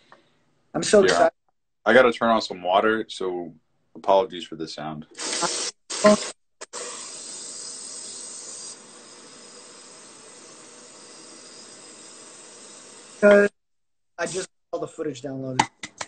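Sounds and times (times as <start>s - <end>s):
water running from tap: 5.2s - 13.5s.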